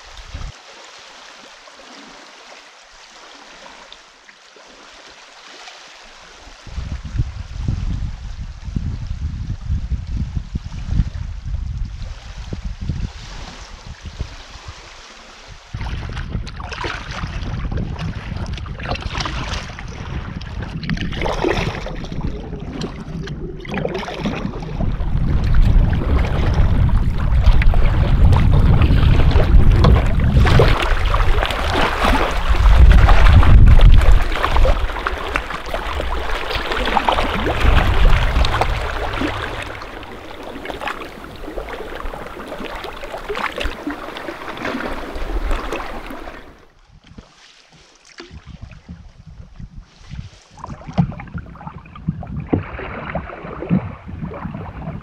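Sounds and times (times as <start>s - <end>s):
wind buffeting microphone: 0.0s - 0.6s, 6.6s - 47.3s, 48.3s - 55.0s
waves splashing: 0.0s - 7.6s, 12.0s - 17.4s, 21.0s - 48.6s.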